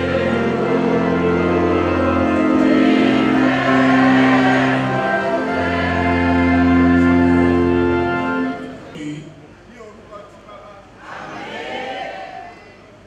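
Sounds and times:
congregation singing a hymn: 0.0s - 8.6s
held instrumental chords: 0.0s - 8.9s.

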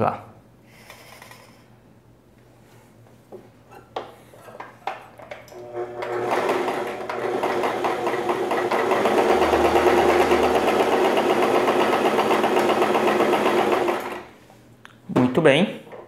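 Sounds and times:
sewing machine clattering: 6.0s - 14.3s.

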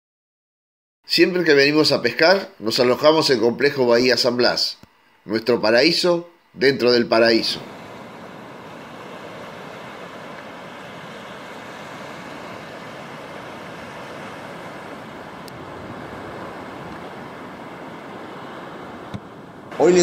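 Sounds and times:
small waves breaking on sand: 7.5s - 20.0s.

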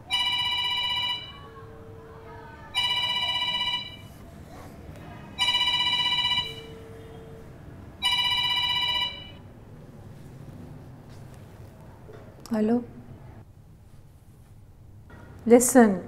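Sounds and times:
electronic phone ringtone: 0.0s - 1.8s, 2.7s - 4.2s, 5.4s - 7.4s, 8.0s - 9.5s.

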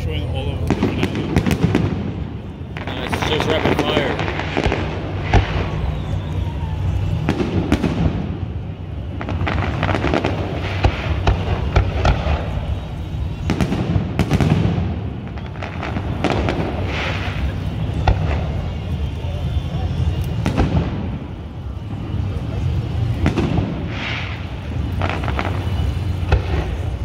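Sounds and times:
firework crackling: 0.0s - 27.0s
firework shells bursting: 22.8s - 27.0s.

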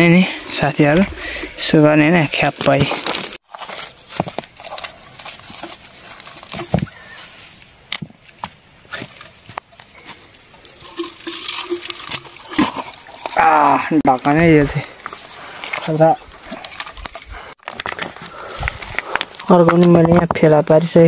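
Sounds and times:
handling clicks and scrapes: 2.4s - 13.4s, 14.8s - 20.4s
plastic bottle crinkling: 2.6s - 7.7s, 9.0s - 13.8s.

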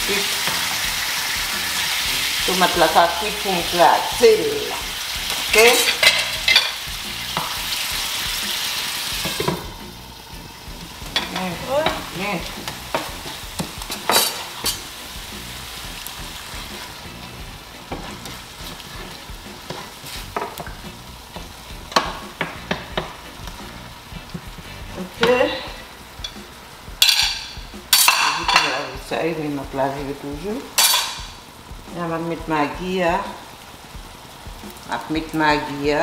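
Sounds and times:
sauce sizzling in a frying pan: 0.0s - 36.0s
wooden spoon knocking a pan: 11.0s - 14.8s, 17.8s - 23.6s, 27.0s - 29.1s.

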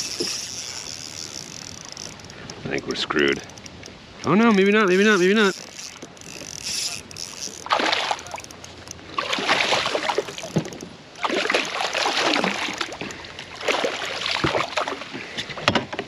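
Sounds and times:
fish thrashing and splashing: 4.9s - 15.2s.

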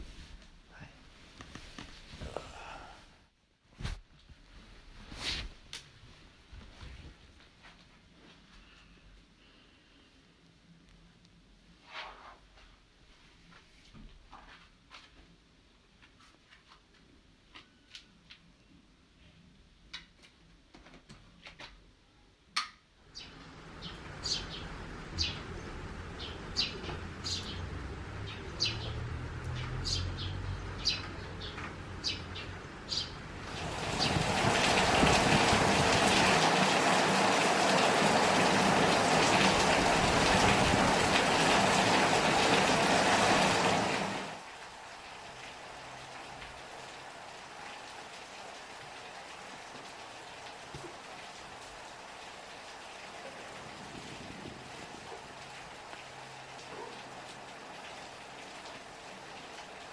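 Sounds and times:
birds chirping: 23.1s - 34.8s
heavy rain: 23.1s - 59.9s.

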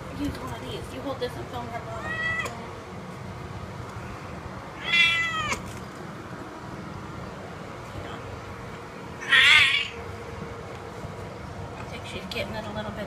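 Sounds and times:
cat meowing: 1.9s - 2.6s, 4.8s - 5.7s, 9.2s - 10.0s.

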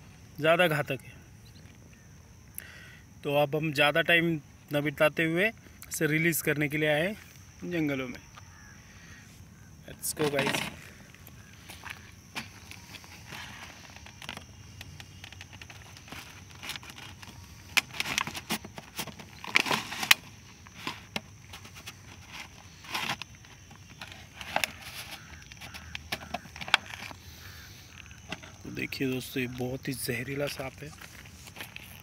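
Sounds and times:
footsteps on gravel and dry grass: 10.0s - 32.0s
plastic jar being handled: 10.0s - 32.0s
jar set down on gravel: 10.2s - 28.6s.

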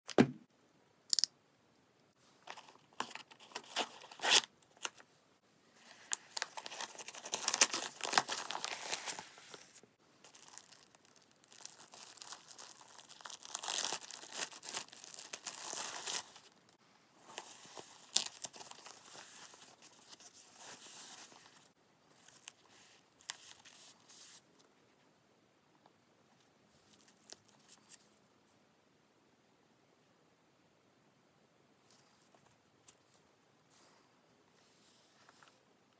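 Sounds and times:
plastic bag rustling: 5.8s - 21.7s.

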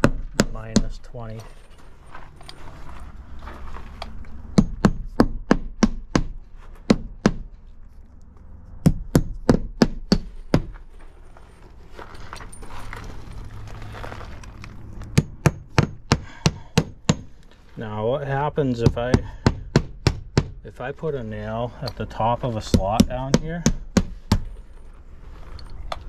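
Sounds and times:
hammer driving nails: 4.5s - 7.5s, 15.2s - 17.4s, 18.8s - 20.6s.

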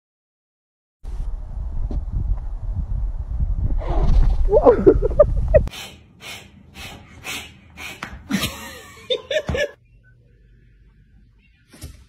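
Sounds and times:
loud low rumble: 1.1s - 5.7s
laugh-like voiced sounds: 4.5s - 6.0s
person gasping: 5.7s - 8.4s.

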